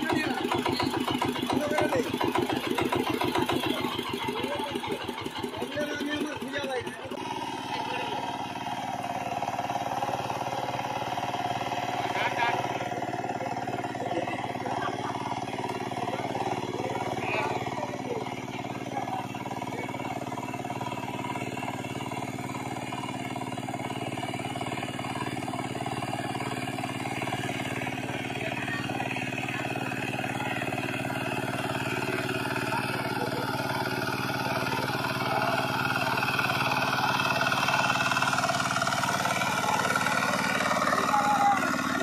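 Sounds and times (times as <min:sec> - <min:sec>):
walking tractor diesel engine: 0:00.0 - 0:42.0.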